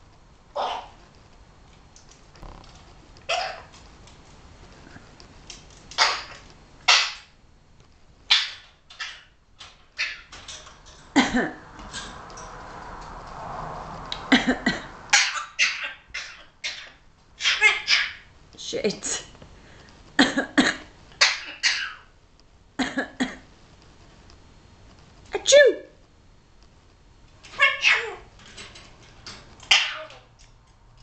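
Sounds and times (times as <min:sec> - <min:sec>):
parrot clicks and squawks: 0:05.8 - 0:07.3, 0:08.3 - 0:10.8, 0:29.6 - 0:30.6.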